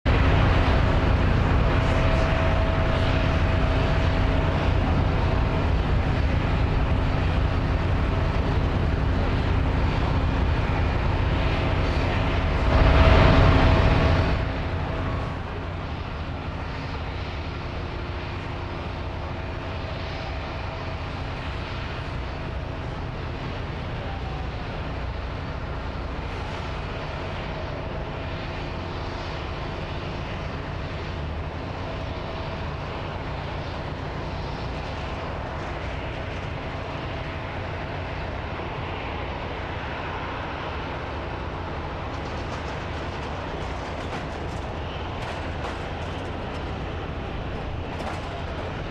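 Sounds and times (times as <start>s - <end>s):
jet engines rumbling with whine: 0.0s - 48.9s.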